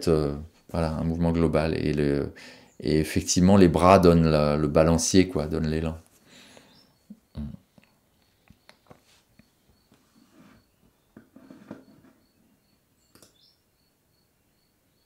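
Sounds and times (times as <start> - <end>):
faint high-pitched chirp: 6.6 - 15.0
rustles: 7.7 - 12.2
soft clicks: 13.1 - 13.4.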